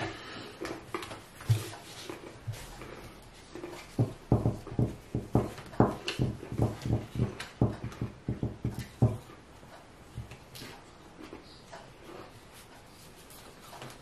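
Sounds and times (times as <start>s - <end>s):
knocks on wooden tabletop: 4.0s - 9.2s.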